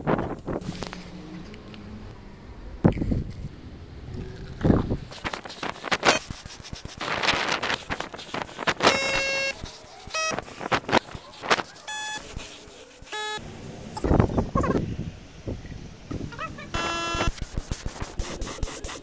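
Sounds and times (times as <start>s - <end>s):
short beep-like tones: 8.9s - 9.6s, 10.2s - 10.4s, 11.9s - 12.3s, 13.2s - 13.4s, 16.8s - 17.3s.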